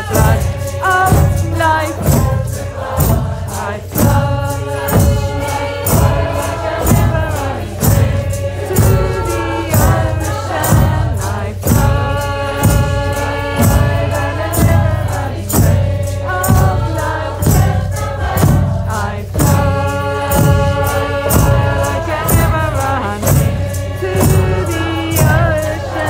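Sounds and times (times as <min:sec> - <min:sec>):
hand drums beating: 0:00.0 - 0:26.0
jingling percussion: 0:00.0 - 0:26.0
voices singing and chanting: 0:00.0 - 0:26.0.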